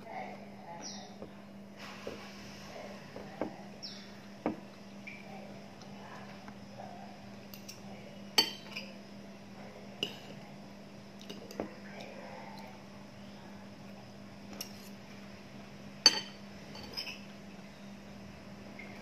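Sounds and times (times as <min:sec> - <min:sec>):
steady low hum: 0:00.0 - 0:19.0
cutlery clinking on ceramic bowl: 0:08.4 - 0:08.9, 0:16.1 - 0:17.3.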